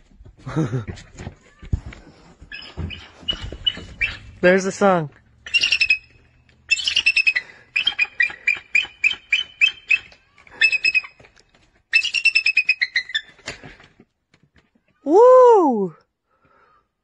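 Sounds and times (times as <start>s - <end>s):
eagle high piping calls: 2.5s - 4.5s, 5.4s - 11.2s, 11.9s - 13.4s.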